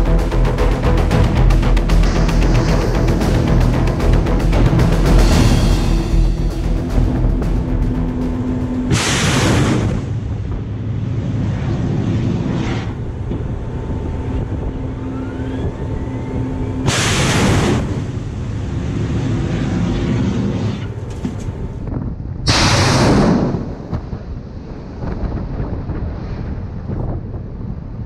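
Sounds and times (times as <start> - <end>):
rising whine: 0.0 - 22.0
low rumble: 0.0 - 28.0
missile launch rushing blasts: 8.6 - 13.2, 16.8 - 20.9, 22.4 - 24.4
wind on microphone: 17.6 - 28.0.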